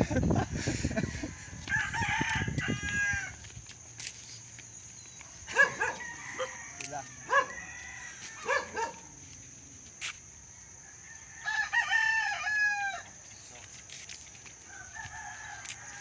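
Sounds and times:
rooster crowing: 0:00.8 - 0:03.5, 0:05.5 - 0:09.1, 0:10.5 - 0:13.2, 0:14.6 - 0:16.0.

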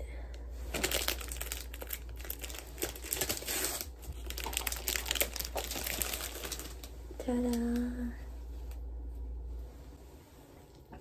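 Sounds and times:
plastic wrapper crinkling: 0:00.6 - 0:07.0.

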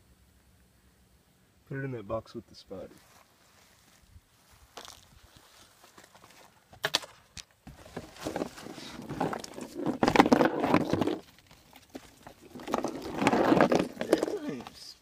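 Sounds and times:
rustling and clattering: 0:04.8 - 0:14.8
objects rolling in cardboard box: 0:07.7 - 0:14.8.

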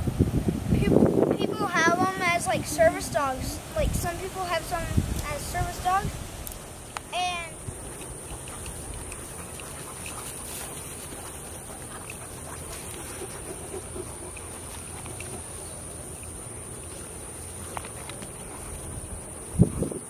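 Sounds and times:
wind on microphone: 0:00.0 - 0:06.9, 0:18.3 - 0:20.0
dogs tussling in grass: 0:07.5 - 0:19.9.

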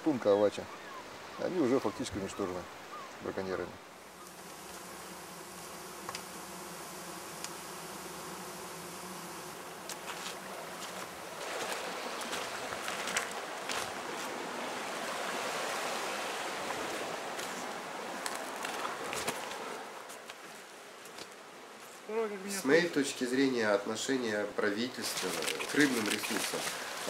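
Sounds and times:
flies buzzing: 0:03.8 - 0:22.2, 0:24.9 - 0:27.0
rustling: 0:04.2 - 0:14.5, 0:25.0 - 0:27.0.

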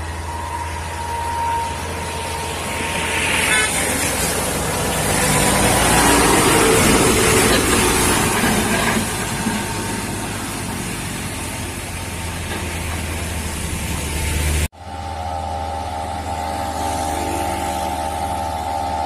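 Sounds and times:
diesel truck engine drone: 0:00.0 - 0:19.0
tyres hissing on wet road: 0:00.0 - 0:19.0.

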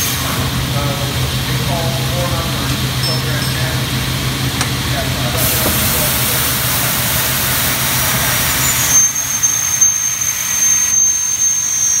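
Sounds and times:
high steady machine whine: 0:00.0 - 0:12.0
machine hiss: 0:05.3 - 0:12.0.

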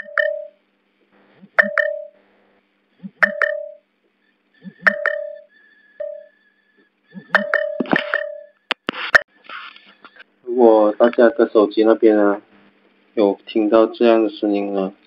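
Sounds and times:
double electronic beep: 0:07.1 - 0:08.6.

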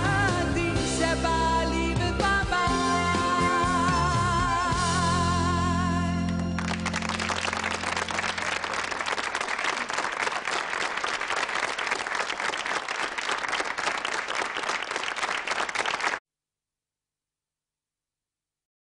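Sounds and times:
audience applauding: 0:06.3 - 0:16.2.

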